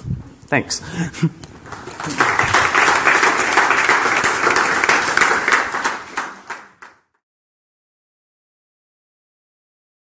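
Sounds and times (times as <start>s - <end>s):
audience applauding: 1.6s - 7.2s.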